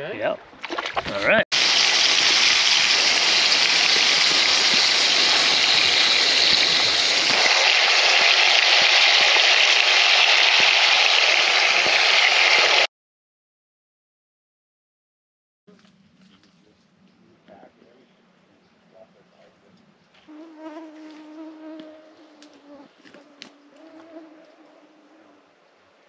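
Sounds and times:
food sizzling in a skillet: 1.6s - 12.8s.

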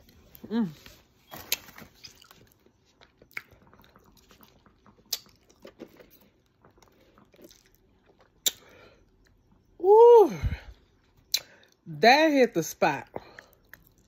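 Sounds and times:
chewing and lip-smacking: 1.4s - 9.6s, 11.2s - 11.8s, 13.2s - 14.0s
wet mouth clicks: 3.3s - 5.4s, 7.5s - 8.8s, 11.3s - 11.7s.

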